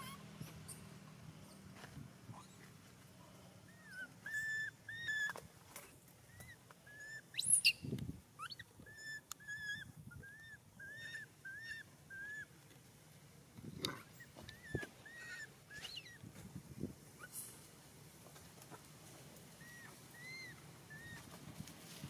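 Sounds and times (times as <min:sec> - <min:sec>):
baby monkey cooing: 0:03.7 - 0:05.4, 0:08.4 - 0:12.5, 0:14.1 - 0:16.2, 0:19.6 - 0:21.3
monkey squealing: 0:03.7 - 0:05.4, 0:08.4 - 0:12.5, 0:14.2 - 0:16.2, 0:19.6 - 0:21.2.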